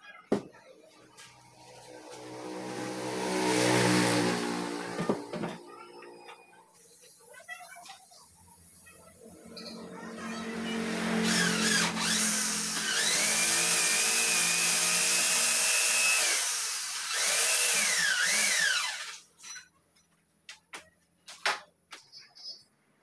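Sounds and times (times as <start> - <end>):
electric drill whining: 10.8 - 19.2.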